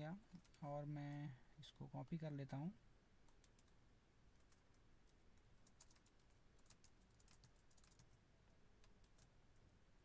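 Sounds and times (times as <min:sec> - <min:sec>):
computer keyboard clicking: 0:03.3 - 0:03.8, 0:04.4 - 0:04.7, 0:05.6 - 0:08.2, 0:08.8 - 0:09.3.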